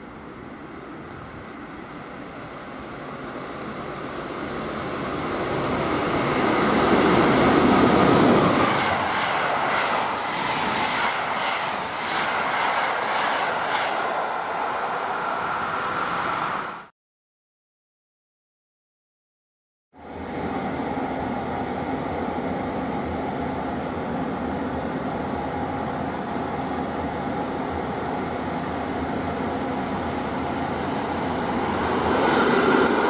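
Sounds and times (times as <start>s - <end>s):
passing train rumble: 0.0s - 16.9s, 24.0s - 33.0s
train wheels clicking on rails: 4.8s - 16.8s.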